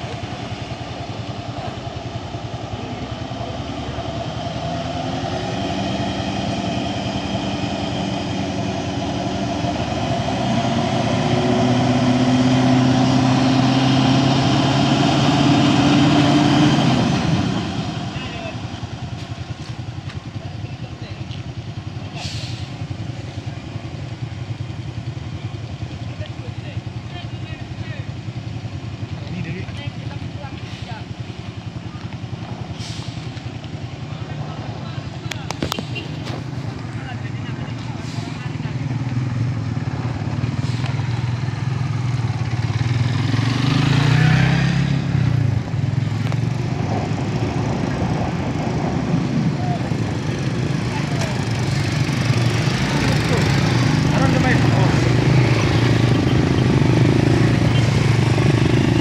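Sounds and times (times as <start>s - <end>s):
truck engine pulling hard: 0.0s - 59.0s
short hiss: 22.2s - 22.8s, 32.8s - 33.4s.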